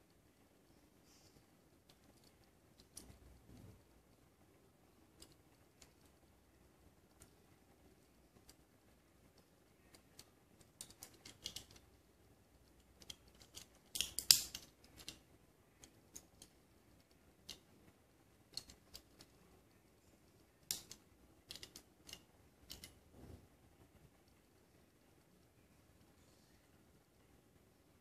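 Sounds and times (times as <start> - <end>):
fingers clicking toy car parts: 1.8 - 3.9, 5.1 - 6.2, 9.3 - 17.7, 18.5 - 19.4, 20.3 - 23.0.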